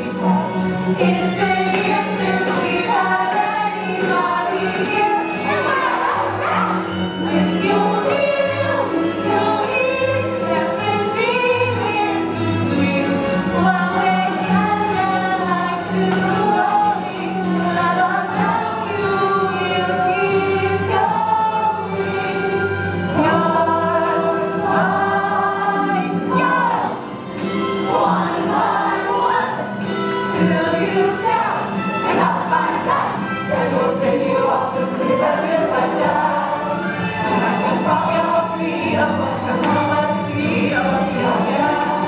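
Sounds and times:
musical accompaniment: 0.0s - 42.0s
children singing in chorus: 1.0s - 12.3s.

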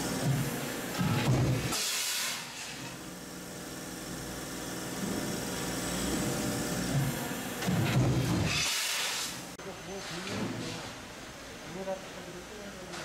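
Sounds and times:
hydraulic pump motor humming: 2.6s - 8.7s.

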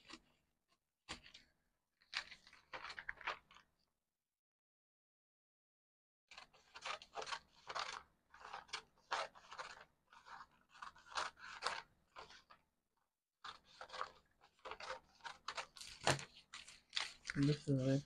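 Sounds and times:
scissors cutting paper: 6.3s - 12.5s, 13.5s - 18.0s.

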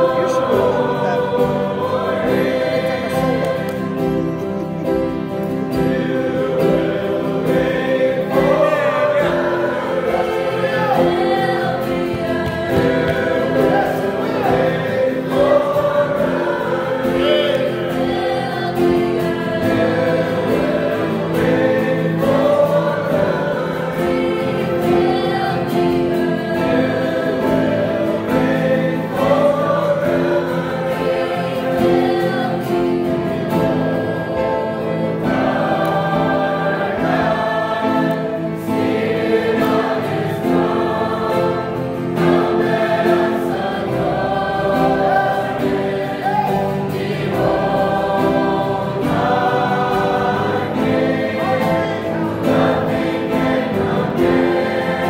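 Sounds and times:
acoustic guitar: 0.0s - 55.0s
choir singing in unison: 0.0s - 55.0s.

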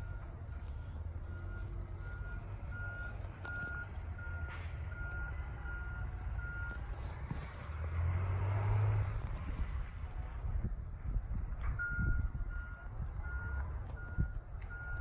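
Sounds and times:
truck backup alarm beeping: 0.0s - 7.0s, 11.6s - 15.0s
truck engine rumble: 0.0s - 15.0s.

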